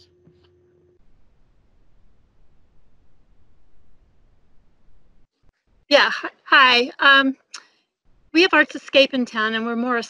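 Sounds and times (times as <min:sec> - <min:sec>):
low hum: 0:00.0 - 0:05.5.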